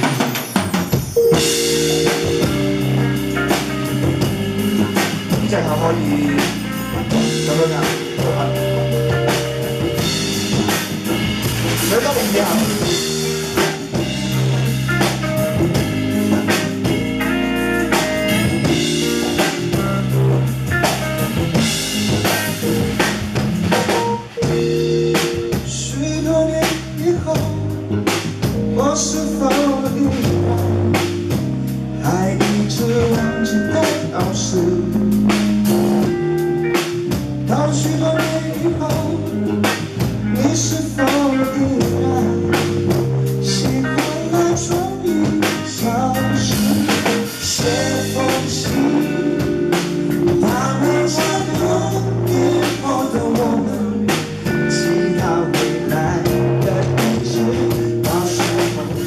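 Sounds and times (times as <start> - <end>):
rock band playing: 0.0 - 59.0
man singing: 4.9 - 10.3, 11.8 - 15.1, 25.4 - 35.4, 37.4 - 59.0.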